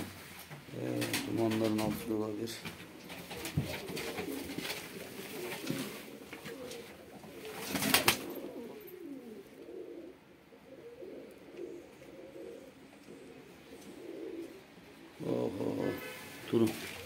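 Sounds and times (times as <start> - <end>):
pigeons cooing: 0.0 - 17.0.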